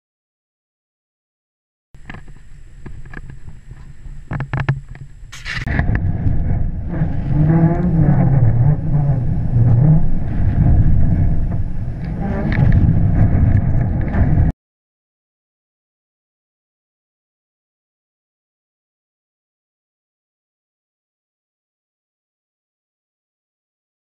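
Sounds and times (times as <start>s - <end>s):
wind rumbling over camera: 2.0s - 14.5s.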